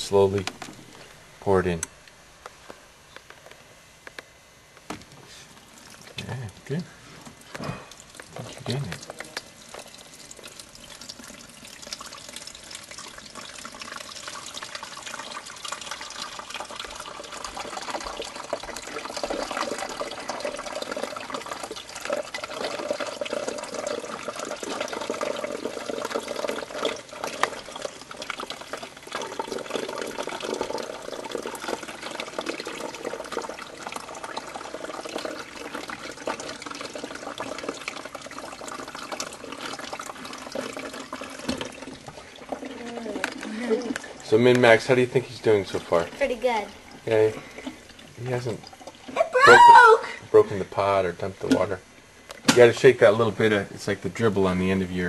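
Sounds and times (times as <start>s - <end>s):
water pouring into coffee maker: 5.6s - 55.0s.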